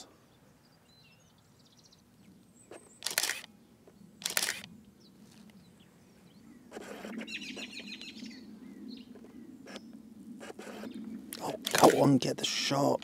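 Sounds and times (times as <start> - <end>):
small birds chirping: 0.0 - 10.0
camera motor advancing film: 3.0 - 3.5, 4.2 - 4.7
camera shutter release: 3.0 - 3.5, 4.2 - 4.7, 11.4 - 12.1.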